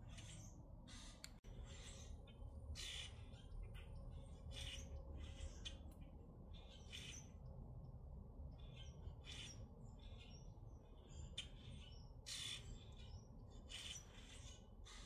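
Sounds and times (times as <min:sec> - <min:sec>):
grackles harsh raspy calls: 0:00.1 - 0:02.2, 0:02.8 - 0:03.5, 0:04.5 - 0:05.8, 0:08.7 - 0:10.4, 0:11.4 - 0:15.0.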